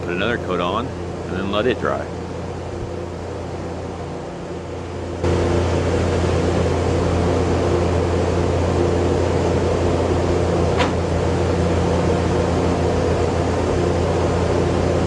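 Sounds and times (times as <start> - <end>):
exhaust fan humming: 0.0 - 15.0
sharp knock: 10.8 - 11.0.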